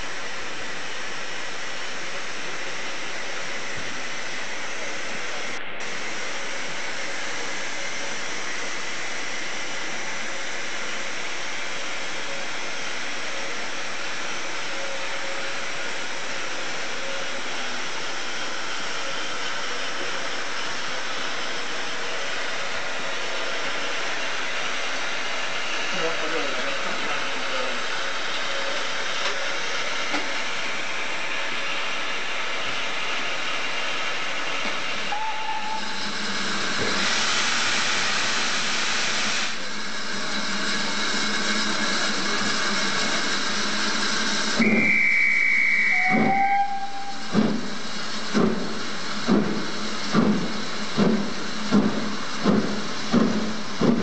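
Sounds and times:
steam locomotive hissing: 0:00.0 - 0:54.0
short whistle: 0:35.1 - 0:35.9, 0:44.6 - 0:47.4.

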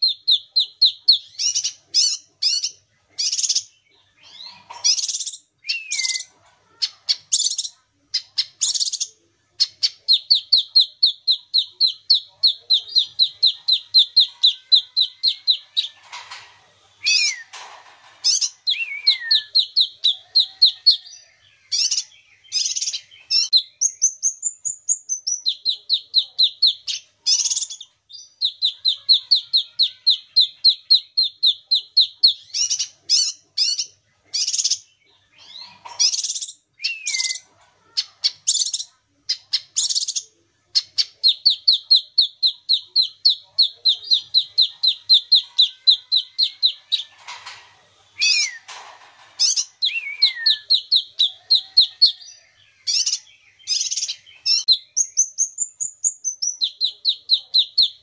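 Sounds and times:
songbird singing trills and whistles: 0:00.0 - 0:06.3, 0:17.0 - 0:17.6, 0:18.3 - 0:20.2, 0:20.9 - 0:37.4, 0:48.2 - 0:48.7, 0:49.4 - 0:58.0.

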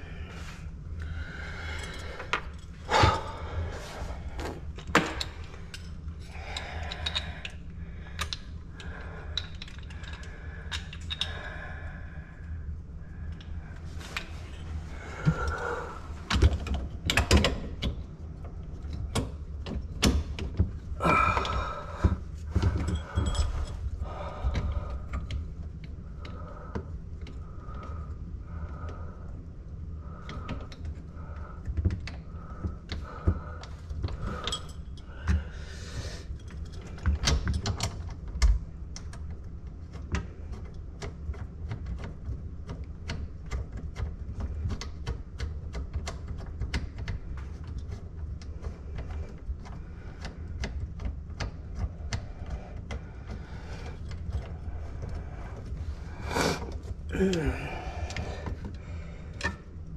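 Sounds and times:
plumbing parts and tools clattering: 0:01.1 - 0:07.5, 0:18.8 - 0:25.4, 0:32.9 - 0:38.5.

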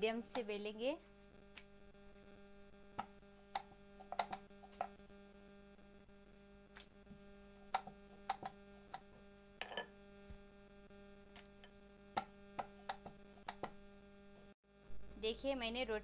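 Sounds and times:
steady electrical hum: 0:00.0 - 0:16.0
rolling pin knocking on wooden board: 0:03.0 - 0:05.0, 0:12.2 - 0:13.8.

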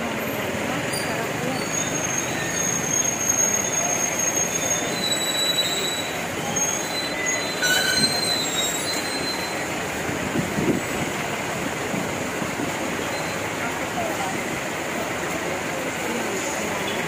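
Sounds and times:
market background noise: 0:00.0 - 0:17.0
high-pitched squeals: 0:00.9 - 0:09.8.

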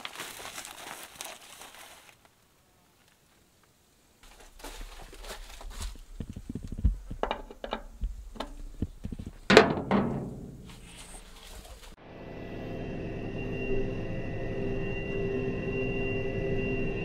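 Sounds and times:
grease gun knocks and clicks: 0:06.6 - 0:10.1.

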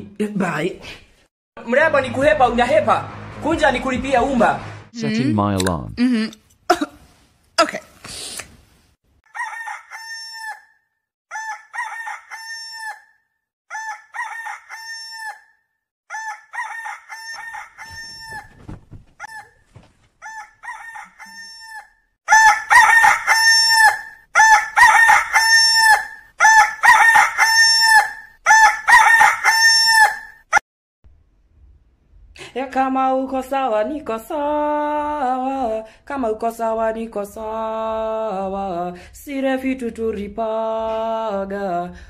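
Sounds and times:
rooster crow alarm tone: 0:09.3 - 0:10.7, 0:11.3 - 0:13.1, 0:13.7 - 0:15.5, 0:16.1 - 0:18.5, 0:20.2 - 0:30.4.

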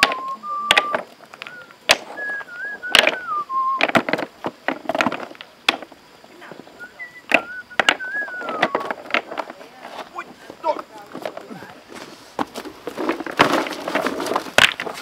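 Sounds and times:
person whistling a tune: 0:00.0 - 0:03.9, 0:06.8 - 0:08.9
stones clacking together: 0:00.0 - 0:11.8, 0:12.4 - 0:15.0.

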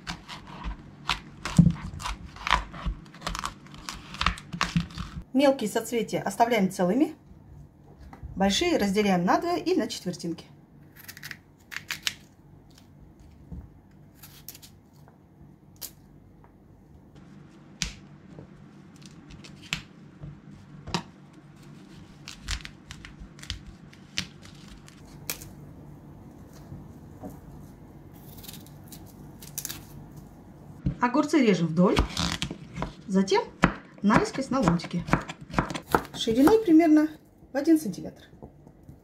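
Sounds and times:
low steady hum: 0:00.0 - 0:39.0
vegetable stems snapping: 0:28.3 - 0:29.9.

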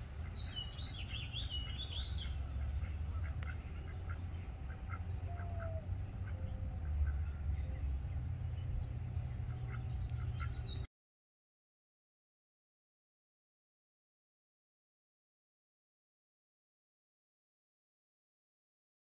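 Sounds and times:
low steady rumble: 0:00.0 - 0:10.9
small birds chirping: 0:00.0 - 0:10.9
duck quacking: 0:01.5 - 0:07.3.

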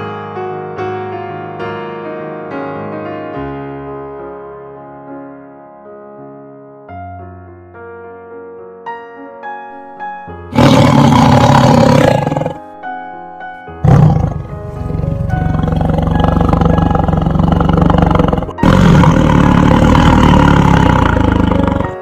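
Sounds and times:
piano notes: 0:00.0 - 0:22.0
big cat roaring: 0:10.5 - 0:12.7, 0:13.8 - 0:22.0.

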